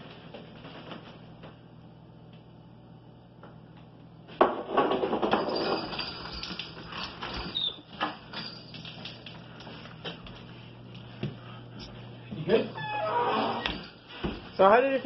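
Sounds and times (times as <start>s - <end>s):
sliding glass door opening: 12.8s - 13.8s.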